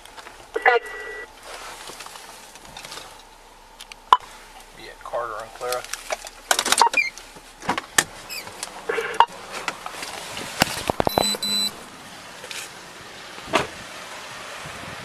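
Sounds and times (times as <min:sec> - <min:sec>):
short electronic beep: 0:00.6 - 0:01.3, 0:11.0 - 0:11.8
car door opening: 0:06.4 - 0:09.8.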